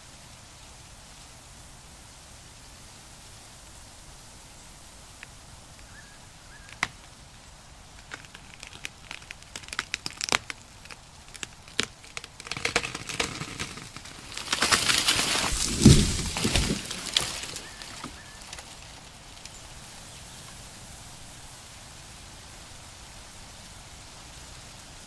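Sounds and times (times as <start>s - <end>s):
crackling and rustling: 4.9s - 20.7s.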